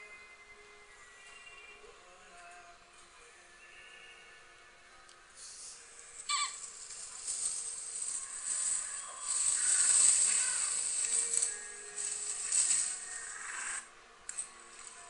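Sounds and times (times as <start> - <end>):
rushing outdoor background noise: 5.2 - 15.0
bird call: 6.3 - 6.7.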